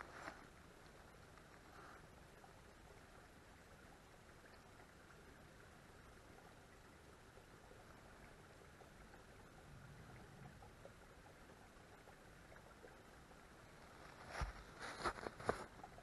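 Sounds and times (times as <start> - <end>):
rustle: 0.0 - 2.1, 13.8 - 15.8
faint steady hiss: 0.0 - 16.0.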